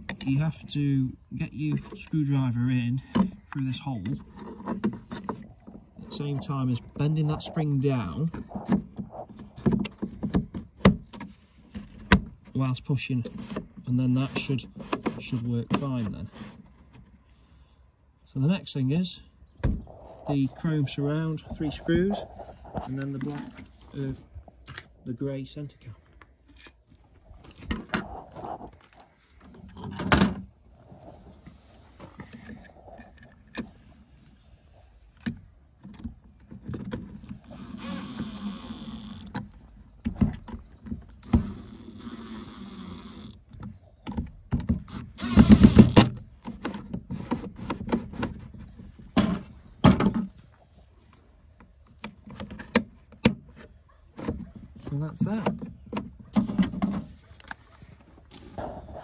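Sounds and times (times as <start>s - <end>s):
cordless drill whining: 37.2s - 39.3s, 41.2s - 43.6s, 44.9s - 46.1s.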